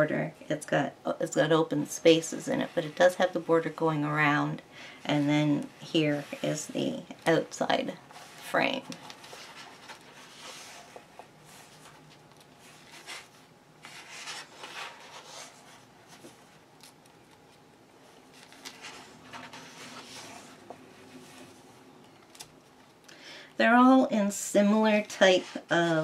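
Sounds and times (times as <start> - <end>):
paper pages rustling: 8.1 - 23.0.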